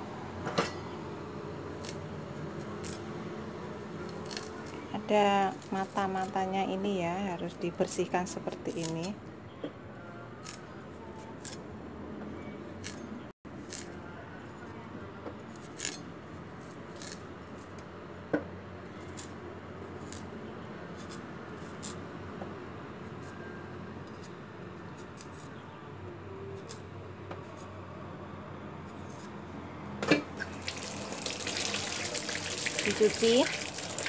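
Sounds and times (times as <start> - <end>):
potato peeling scrapes: 16.9 - 17.2
tap water running into sink: 30.4 - 34.0.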